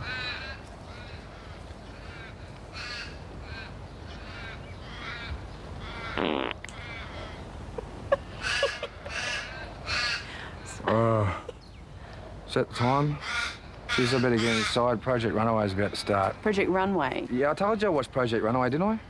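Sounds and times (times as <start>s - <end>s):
crows cawing: 0.0s - 7.5s, 8.1s - 10.6s, 12.9s - 16.4s
short fart: 6.2s - 6.7s.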